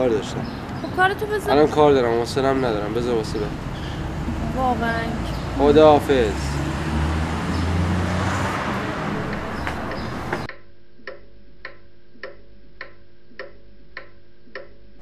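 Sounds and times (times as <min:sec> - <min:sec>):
street traffic: 0:00.0 - 0:10.5
clock ticking: 0:09.1 - 0:14.8.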